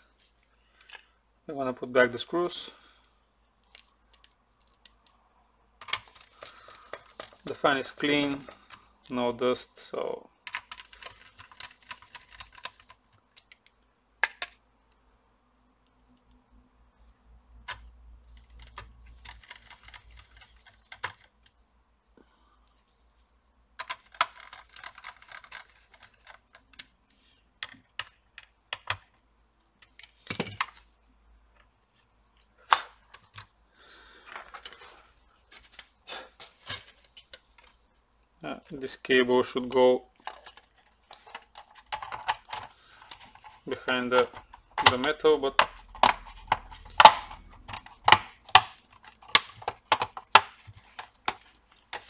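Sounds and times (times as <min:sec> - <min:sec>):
screwdriver clicking and rattling: 0:40.2 - 0:52.0.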